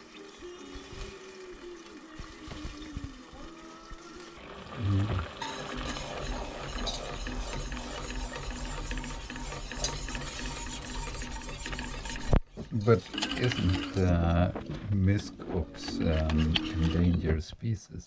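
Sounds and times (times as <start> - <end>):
wire whisk scraping metal pot: 5.4 - 14.4, 15.5 - 17.4.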